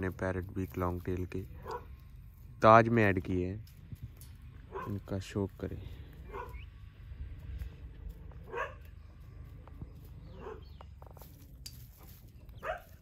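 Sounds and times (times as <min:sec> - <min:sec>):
dog barking: 0:01.6 - 0:01.9, 0:04.7 - 0:05.0, 0:06.2 - 0:06.6, 0:08.5 - 0:08.9, 0:10.3 - 0:10.7, 0:12.6 - 0:13.0.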